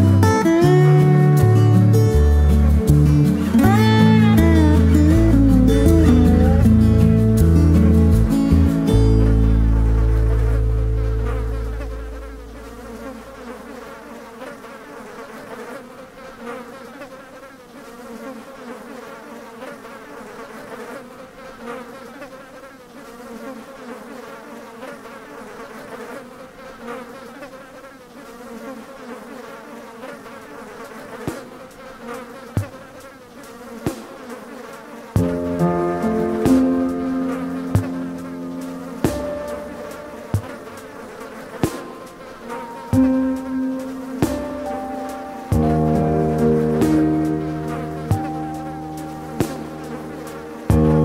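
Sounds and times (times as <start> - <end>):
music: 0.0 - 13.4, 35.2 - 51.0
swarm of flying insects buzzing: 0.0 - 51.0.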